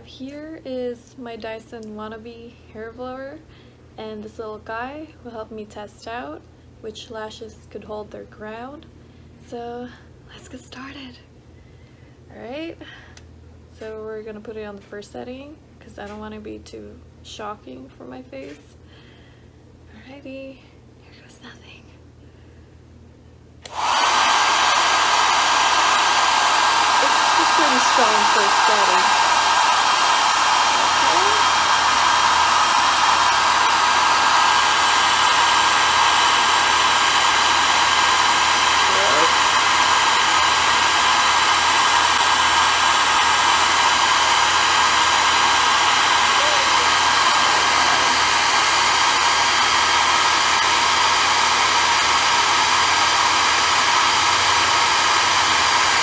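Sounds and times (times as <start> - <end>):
hair dryer blowing: 23.6 - 56.0.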